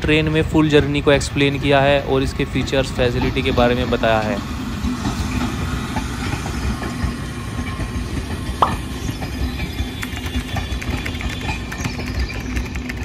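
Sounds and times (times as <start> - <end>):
train rumbling on track: 0.0 - 13.0
train wheel squeal: 2.4 - 13.0
small wheel clicks: 9.3 - 13.0.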